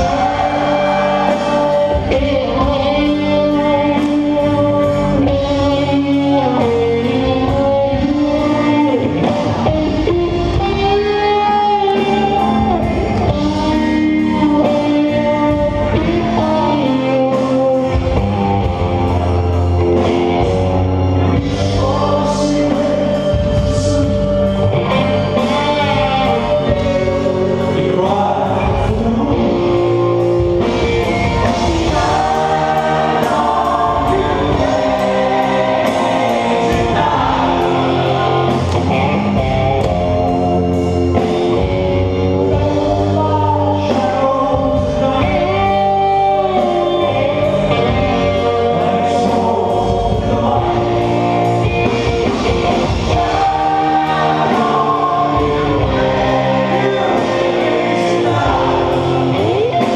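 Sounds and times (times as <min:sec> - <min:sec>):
singing vocals: 0:00.0 - 0:19.2, 0:20.0 - 0:59.9
electric guitar: 0:00.0 - 0:59.9
live rock band: 0:00.0 - 0:59.9.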